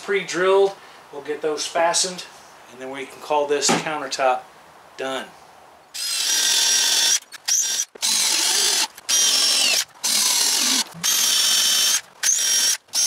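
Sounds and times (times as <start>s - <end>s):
cordless drill drilling into plywood: 6.0s - 13.0s.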